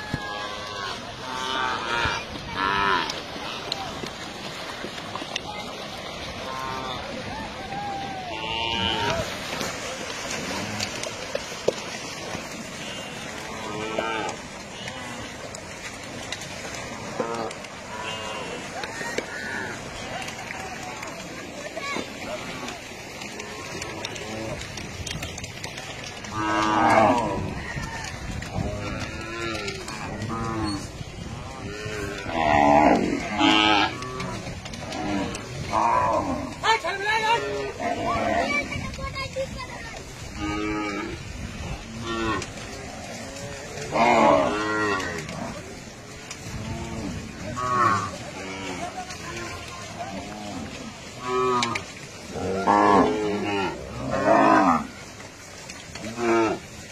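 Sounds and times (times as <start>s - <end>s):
cattle mooing: 0.3s - 3.8s, 8.2s - 9.3s, 10.3s - 11.1s, 12.6s - 15.5s, 17.1s - 19.9s, 26.2s - 27.6s, 28.5s - 30.9s, 31.5s - 36.6s, 37.2s - 38.6s, 40.4s - 41.2s, 41.8s - 45.6s, 46.5s - 55.0s, 55.9s - 56.6s.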